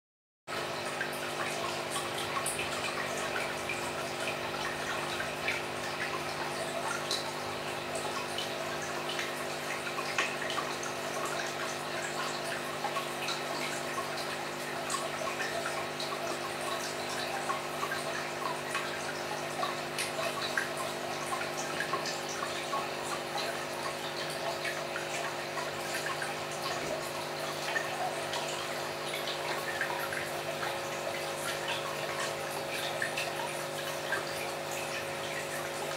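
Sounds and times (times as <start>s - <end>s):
aquarium pump motor hum: 0.5s - 35.9s
aquarium water trickling and bubbling: 0.5s - 35.9s
water drips: 0.6s - 35.9s.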